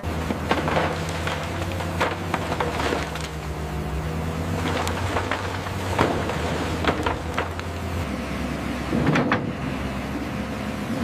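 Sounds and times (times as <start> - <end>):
concrete rubble cracking and clanking: 0.0 - 8.0
excavator engines humming: 0.0 - 11.0.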